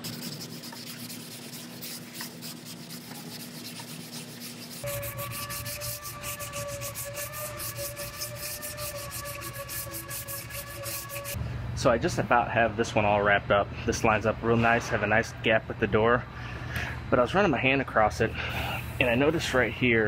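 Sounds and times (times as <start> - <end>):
sandpaper rasping strokes: 0.0 - 11.4
steady whining hum: 0.0 - 20.0.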